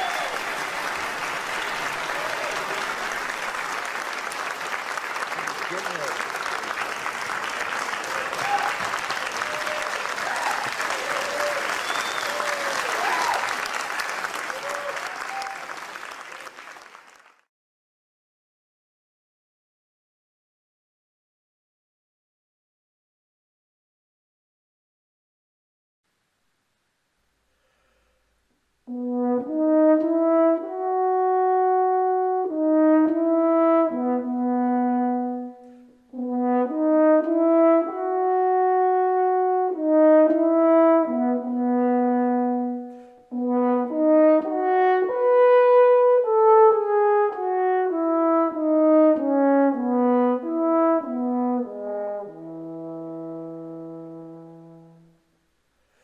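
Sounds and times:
french horn melody: 28.9s - 55.4s.

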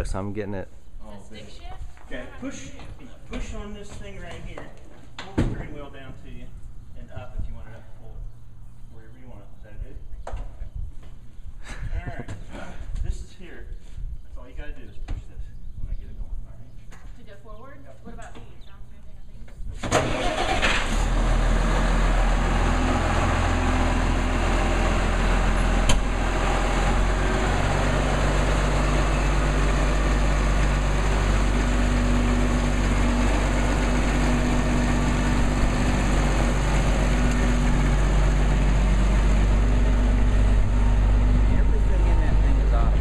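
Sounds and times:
diesel tractor engine running: 19.8s - 43.0s.

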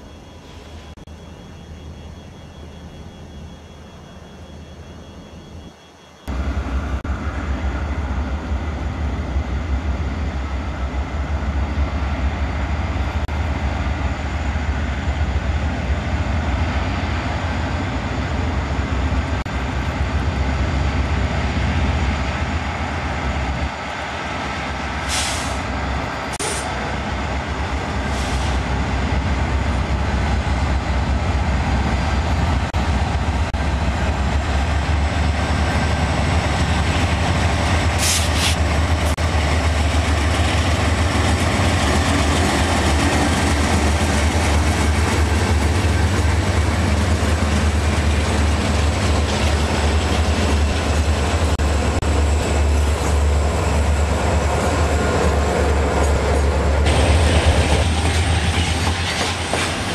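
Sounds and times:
diesel locomotive rumble: 0.0s - 59.9s
train on rails: 0.0s - 59.9s.

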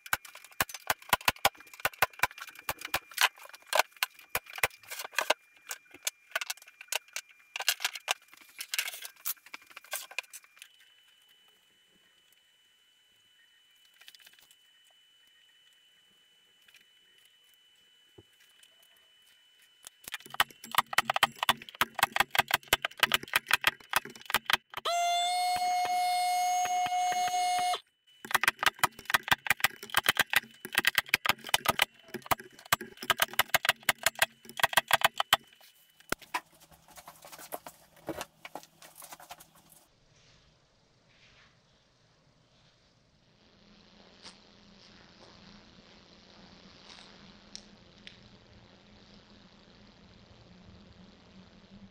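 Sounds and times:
loud steady hum: 0.0s - 39.8s.

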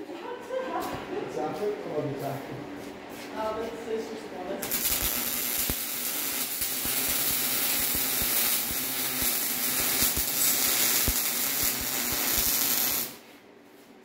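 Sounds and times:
welding arc sizzling and crackling: 4.6s - 13.3s.

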